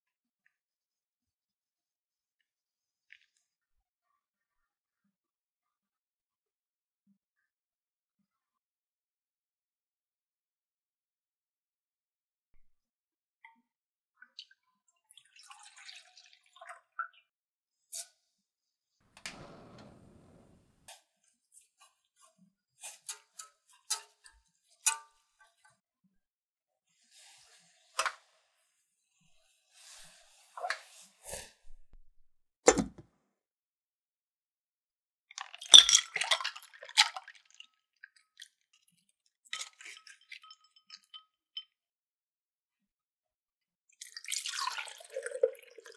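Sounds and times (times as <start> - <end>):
milk pouring into saucepan: 15.2 - 16.8, 44.0 - 45.9
gas flame hissing: 19.2 - 20.9
ice cubes clinking: 35.6 - 36.6.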